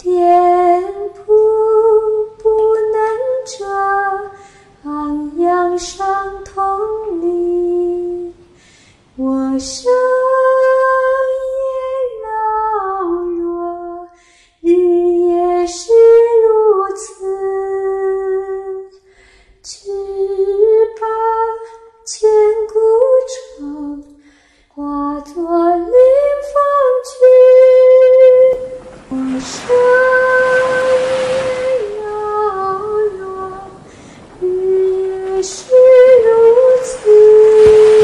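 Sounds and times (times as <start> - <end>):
soft hiss: 0.0 - 38.0
woman singing slowly: 9.2 - 18.9.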